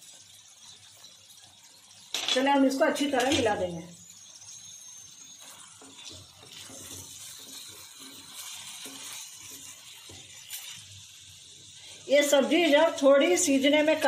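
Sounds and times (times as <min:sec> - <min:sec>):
sizzling hiss: 0:00.0 - 0:14.0
spatula scraping in a pan: 0:03.2 - 0:13.1.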